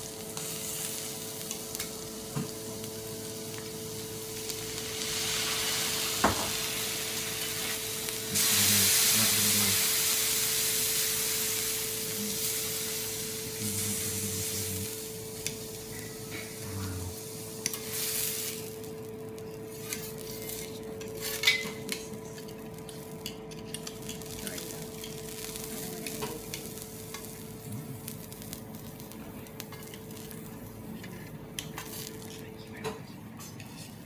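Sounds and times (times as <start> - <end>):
seafood sizzling on griddle: 0.0 - 32.5
steady hum: 0.0 - 34.0
utensils scraping hot plate: 19.5 - 22.6.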